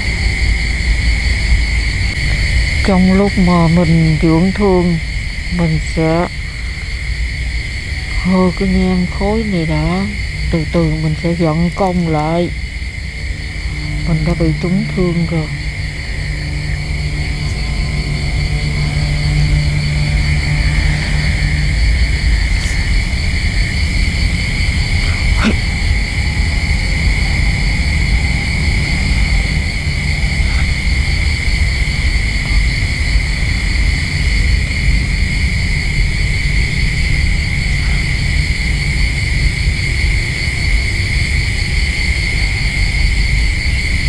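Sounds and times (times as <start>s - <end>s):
high insect-like chirring: 0.0s - 44.0s
low rumbling drone: 0.0s - 44.0s.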